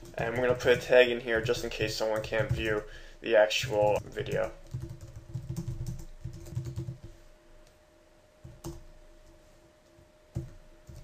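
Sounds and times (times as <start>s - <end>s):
faint steady hum: 0.0s - 11.0s
keyboard typing: 3.6s - 7.1s, 8.4s - 8.9s.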